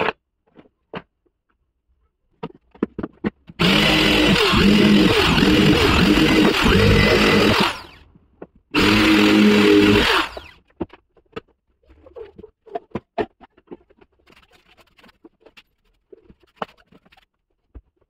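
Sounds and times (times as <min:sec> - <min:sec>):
power drill whining: 0:03.6 - 0:08.0, 0:08.8 - 0:10.6.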